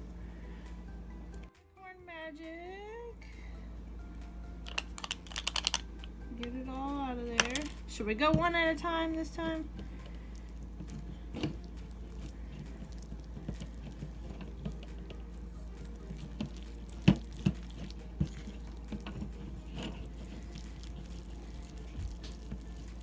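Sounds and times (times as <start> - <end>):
slime squelching: 9.8 - 23.0.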